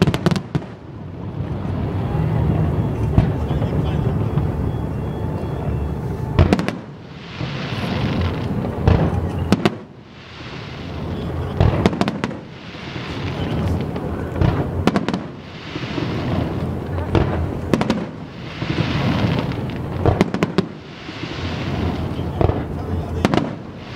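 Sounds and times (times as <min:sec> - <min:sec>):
distant fireworks bangs: 0:00.0 - 0:23.9
low rolling rumble: 0:00.6 - 0:23.9
steady hissing rush: 0:00.7 - 0:23.9.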